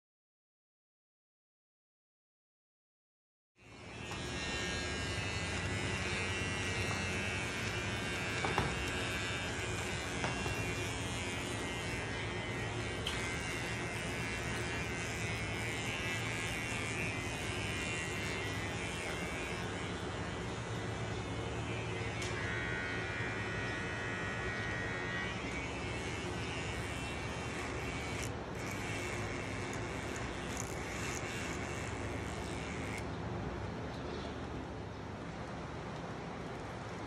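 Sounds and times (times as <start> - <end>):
small electric motor buzzing: 3.6 - 33.2.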